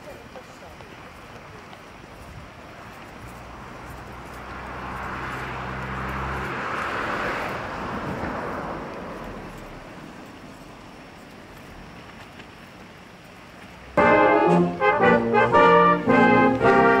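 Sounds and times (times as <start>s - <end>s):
low engine hum: 0.1s - 17.0s
vehicle passing by: 3.2s - 10.8s, 14.0s - 17.0s.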